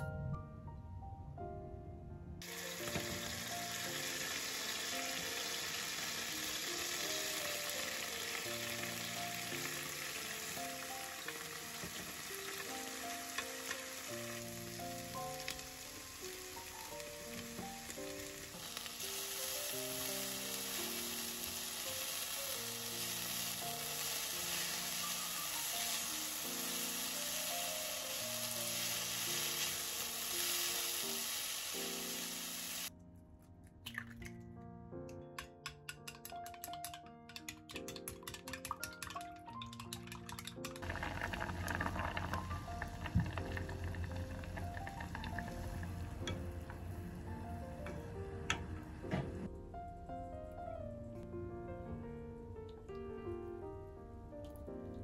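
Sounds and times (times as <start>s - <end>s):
soft background melody: 0.0s - 55.0s
food sizzling in a pan: 2.4s - 32.9s, 40.4s - 48.2s.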